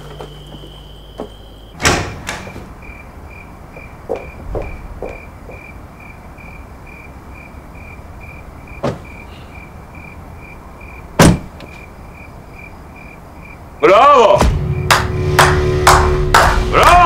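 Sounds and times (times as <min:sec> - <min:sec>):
crickets chirping: 0:00.0 - 0:16.7
car doors thudding shut: 0:01.3 - 0:02.7, 0:08.7 - 0:09.2, 0:11.2 - 0:11.8.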